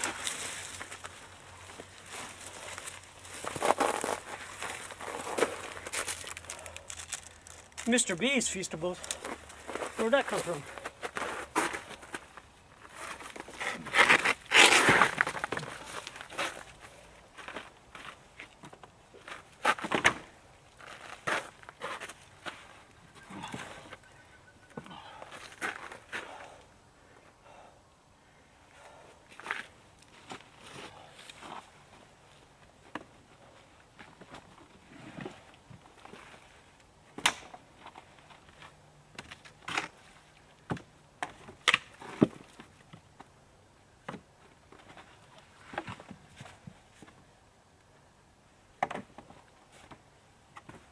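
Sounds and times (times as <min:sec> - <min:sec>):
footsteps on twigs and snow: 0:00.0 - 0:19.8.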